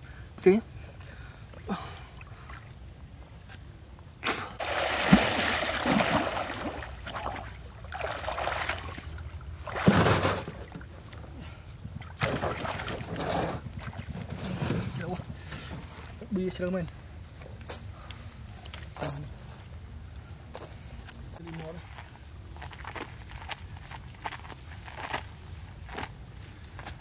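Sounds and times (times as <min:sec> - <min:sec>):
water splashing and sloshing: 0:01.5 - 0:03.5, 0:04.3 - 0:16.7, 0:18.3 - 0:20.0, 0:21.1 - 0:26.1.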